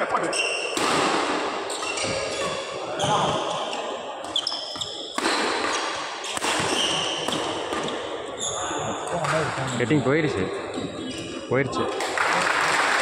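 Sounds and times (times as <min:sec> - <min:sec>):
racket hitting shuttlecock: 0:00.7 - 0:02.6, 0:04.7 - 0:08.0
shoes squeaking on court: 0:01.7 - 0:08.9, 0:10.6 - 0:11.5.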